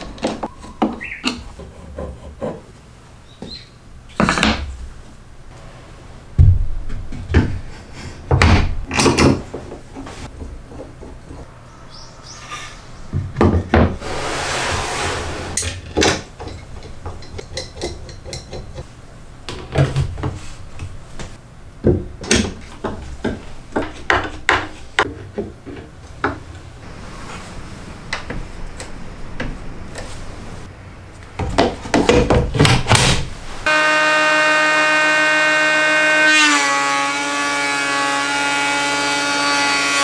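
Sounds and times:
wooden knocks and clicks: 0:08.3 - 0:11.5
wood sliding rub: 0:14.0 - 0:15.6.

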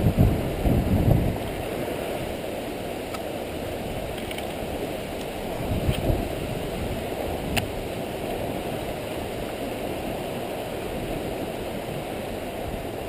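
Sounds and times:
wind rushing: 0:00.0 - 0:02.3, 0:05.4 - 0:08.6.

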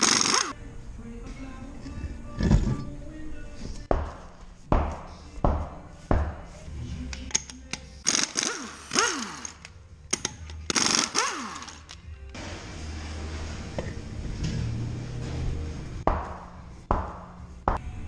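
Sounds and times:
wrench motor winding down: 0:00.0 - 0:00.6, 0:08.0 - 0:12.0
impact wrench hammering: 0:03.9 - 0:12.0.

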